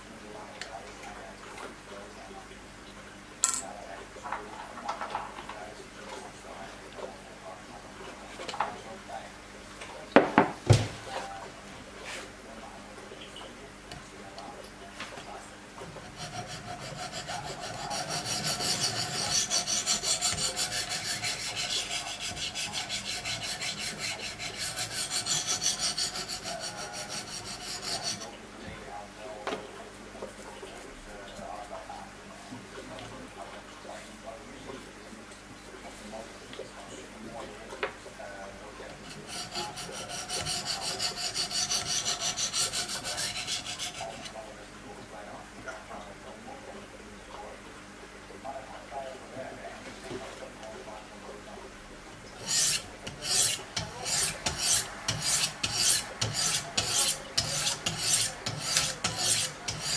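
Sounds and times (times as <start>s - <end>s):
stones scraping knife edge: 16.3s - 28.2s, 39.1s - 44.1s, 52.4s - 59.9s.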